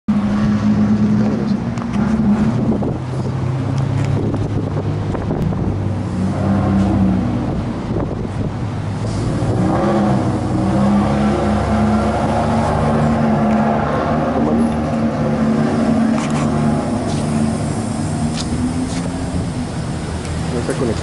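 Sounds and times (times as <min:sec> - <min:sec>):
wind on microphone: 0:00.1 - 0:20.5
engine idling: 0:14.4 - 0:21.0.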